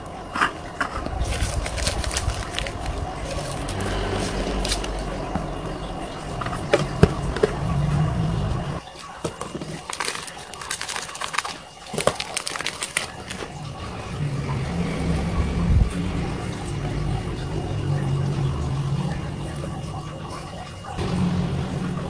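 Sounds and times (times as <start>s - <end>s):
paper cups clicking: 0.0s - 8.1s, 8.8s - 13.8s
low background rumble: 0.0s - 8.8s
plastic pouch crinkling: 1.0s - 5.6s, 9.1s - 13.6s.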